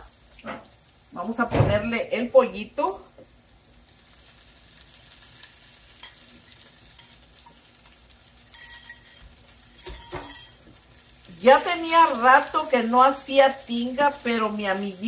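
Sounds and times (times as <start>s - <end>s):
food sizzling in frying pan: 0.0s - 15.0s
scraping in pan: 5.4s - 11.0s.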